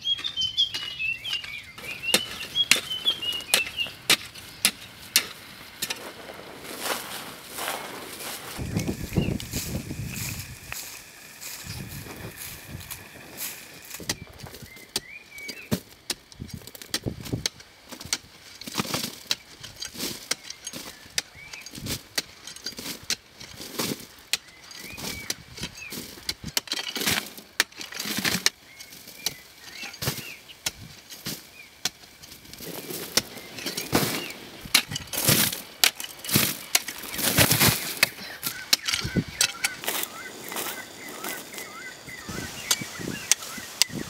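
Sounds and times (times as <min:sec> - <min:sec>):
birds chirping faintly: 0:00.0 - 0:16.6, 0:27.8 - 0:44.0
soil and gravel falling: 0:00.0 - 0:44.0
metal tool striking earth: 0:00.2 - 0:07.7, 0:08.5 - 0:44.0.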